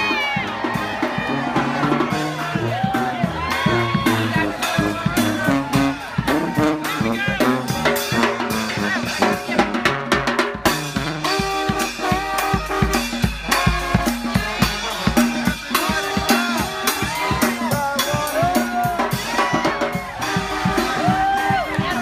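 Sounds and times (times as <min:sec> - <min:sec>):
drums steady beat: 0:00.0 - 0:22.0
brass horn notes: 0:00.4 - 0:22.0.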